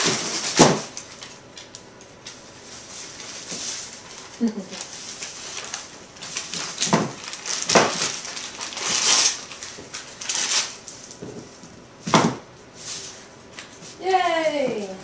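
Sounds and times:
dog ripping wrapping paper: 0.0s - 1.7s, 2.3s - 11.2s.

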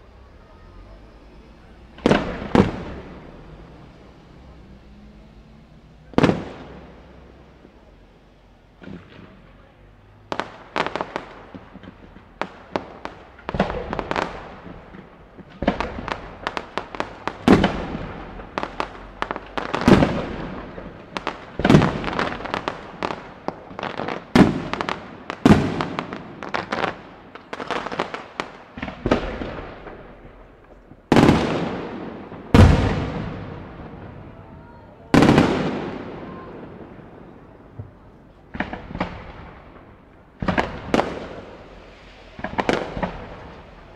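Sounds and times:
small firework cracks: 0.0s - 43.9s
firework shells bursting: 1.0s - 4.9s, 10.3s - 34.4s.

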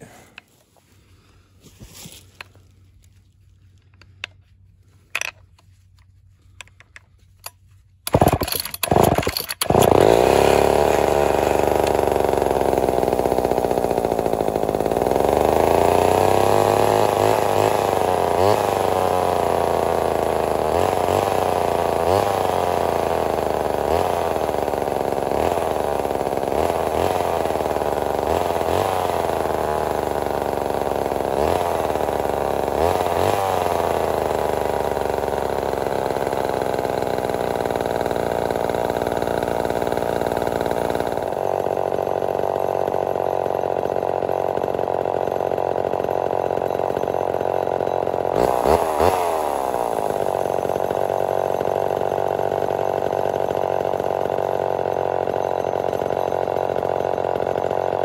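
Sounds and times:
chainsaw engine revving and idling: 5.2s - 58.0s.

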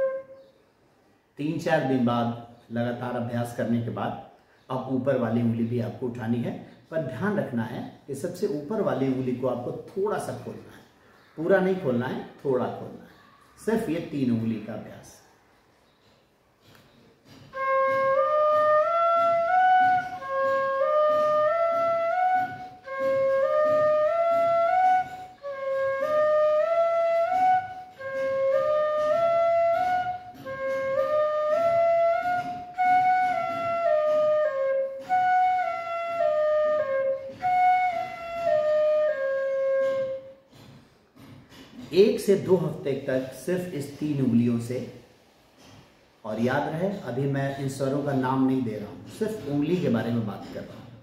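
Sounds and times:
flute playing: 0.0s - 0.6s, 17.5s - 40.5s.

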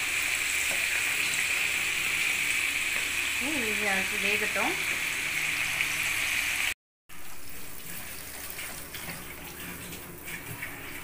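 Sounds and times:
hot oil sizzling: 0.0s - 11.0s
light crackling of frying food: 0.0s - 11.0s.

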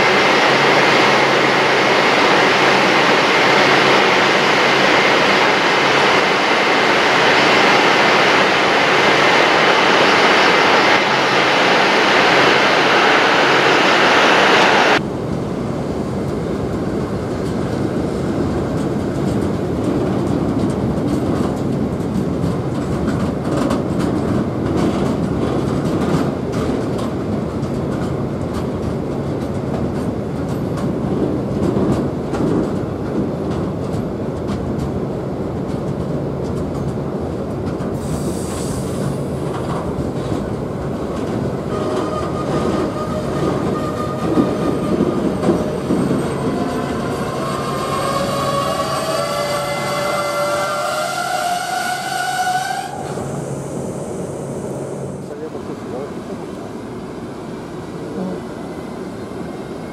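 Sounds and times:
train rushing past at speed: 0.0s - 34.9s, 36.2s - 59.9s
train wheels clacking over rail joints: 39.4s - 52.6s.

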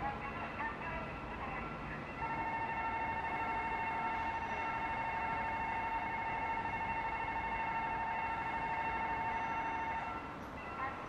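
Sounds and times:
railroad crossing bell ringing: 2.2s - 11.0s.

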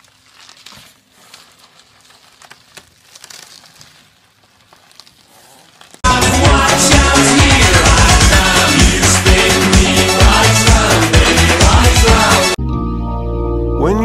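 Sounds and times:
bubble wrap crinkling: 0.0s - 6.1s
loud dance music: 6.0s - 12.6s.

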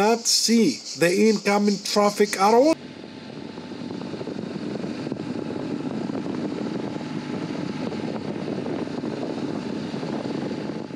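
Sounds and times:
wind and road noise: 0.0s - 10.9s
motorcycle engine running: 2.8s - 10.9s.

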